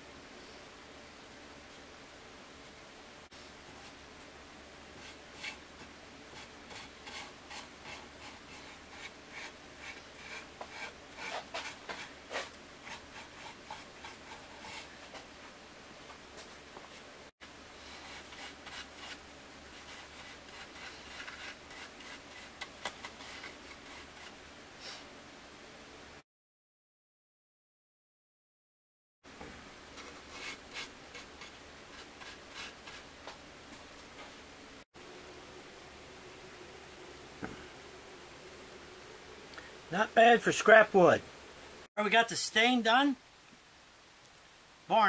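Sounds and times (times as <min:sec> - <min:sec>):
paintbrush brushing on wood: 0:04.9 - 0:15.4, 0:17.8 - 0:24.4, 0:29.9 - 0:34.3.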